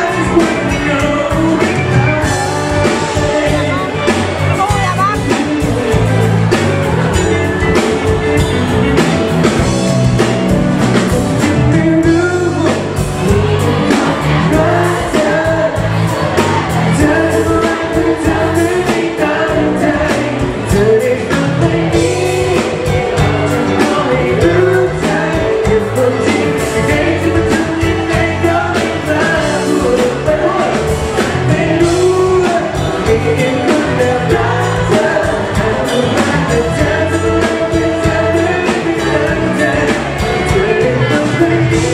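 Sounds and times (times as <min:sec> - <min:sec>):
live pop rock band: 0:00.0 - 0:41.9
man singing lead: 0:00.0 - 0:41.9.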